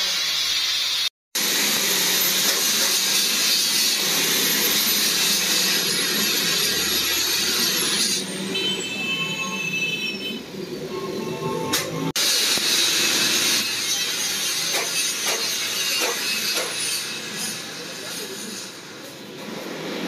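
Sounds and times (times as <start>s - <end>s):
angle grinder grinding metal: 0.0s - 8.5s, 12.2s - 19.0s.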